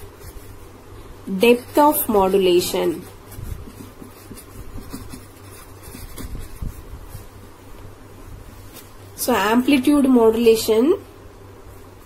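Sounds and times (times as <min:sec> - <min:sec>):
low steady hum: 0:00.0 - 0:12.0
pen scratching on paper: 0:01.4 - 0:06.8.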